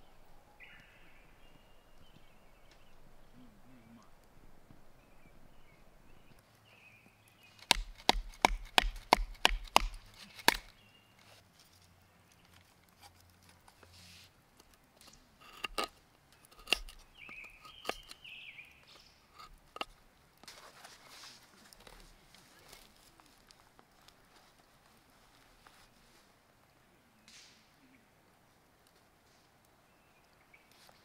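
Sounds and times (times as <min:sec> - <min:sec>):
knife splitting kindling on board: 0:16.5 - 0:18.2.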